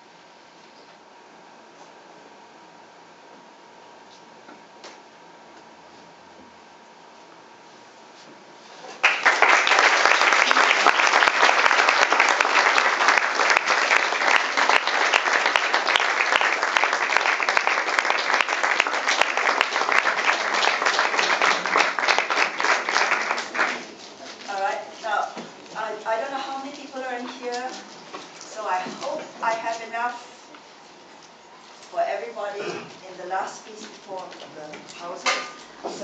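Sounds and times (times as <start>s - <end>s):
audience applauding: 8.9s - 24.2s.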